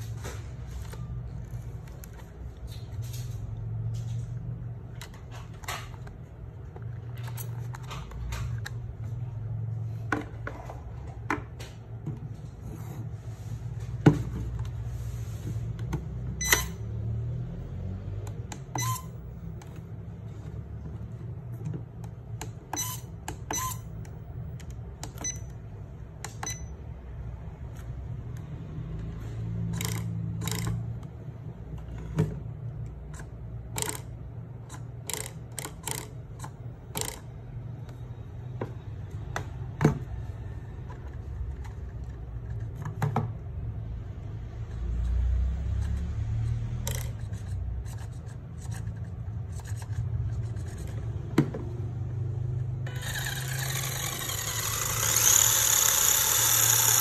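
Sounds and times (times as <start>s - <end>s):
button clicks and short beeps: 16.4s - 16.8s.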